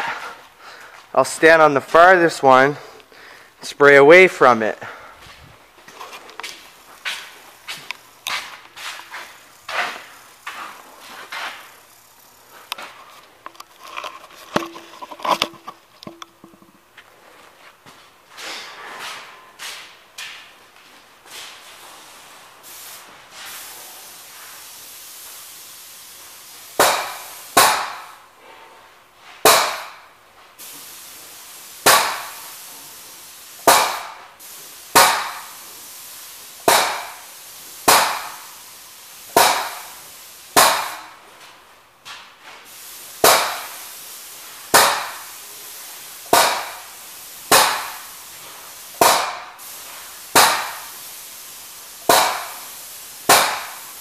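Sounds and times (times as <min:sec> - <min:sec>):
steady background hiss: 0:00.0 - 0:54.0
spray gun hissing bursts: 0:05.0 - 0:13.0, 0:21.3 - 0:28.5, 0:29.4 - 0:41.4, 0:42.4 - 0:54.0.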